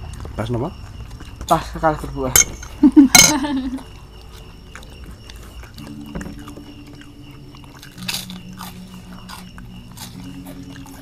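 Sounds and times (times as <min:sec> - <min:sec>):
crunching crackers being chewed: 0:00.0 - 0:02.1, 0:03.6 - 0:11.0.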